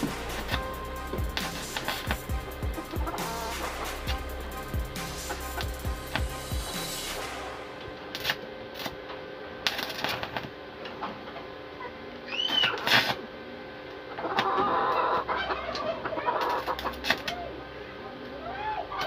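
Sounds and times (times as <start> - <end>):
welding arc crackling: 0.0 - 9.0, 9.6 - 10.5
chickens clucking: 1.4 - 4.2, 14.1 - 17.6.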